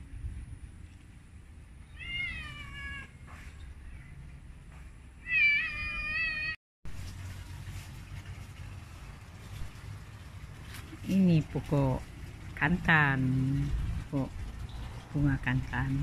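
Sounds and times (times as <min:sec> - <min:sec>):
cat meowing: 0:01.9 - 0:03.2, 0:05.2 - 0:06.6.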